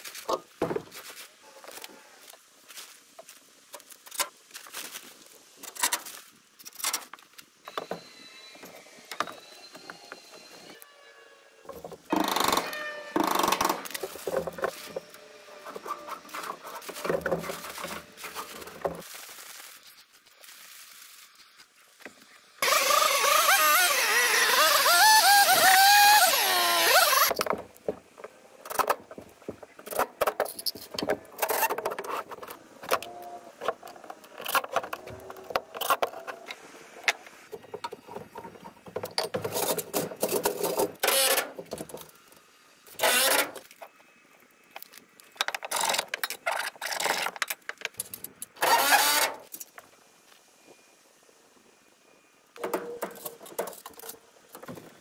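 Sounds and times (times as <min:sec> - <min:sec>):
harsh power tool noise: 0:22.6 - 0:27.4, 0:43.0 - 0:43.6, 0:48.6 - 0:49.4.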